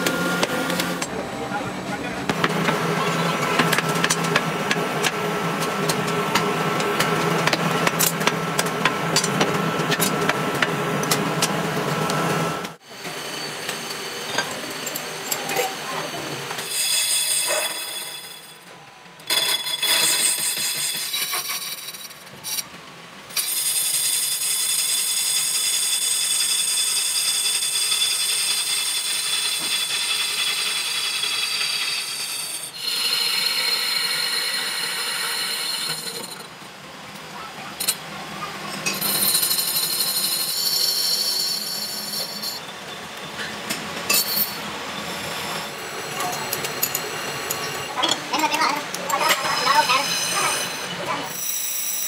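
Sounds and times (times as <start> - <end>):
lathe tool squealing on metal: 13.2 - 18.7, 23.4 - 36.5, 38.9 - 43.5, 49.1 - 52.0.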